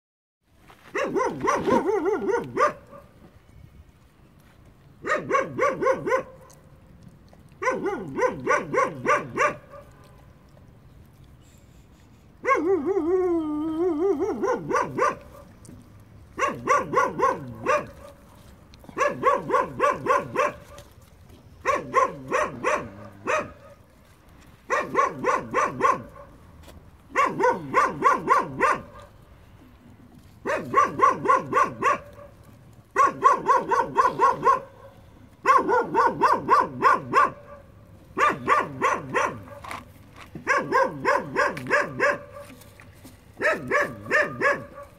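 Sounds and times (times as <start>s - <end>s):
dog barking: 0.9s - 3.2s, 5.0s - 6.6s, 7.6s - 10.1s, 12.4s - 13.0s, 14.0s - 15.5s, 16.4s - 20.9s, 21.6s - 23.8s, 24.7s - 26.4s, 27.1s - 29.1s, 30.4s - 39.8s, 40.4s - 42.6s, 43.4s - 44.9s.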